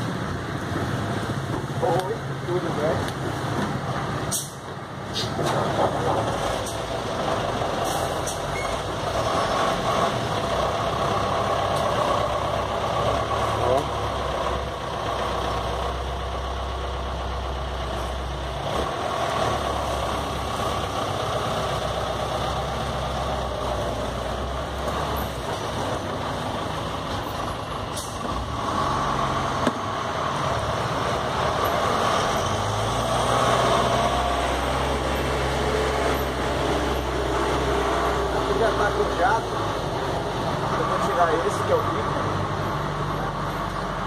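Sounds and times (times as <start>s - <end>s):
diesel bus engine idling: 0.0s - 44.0s.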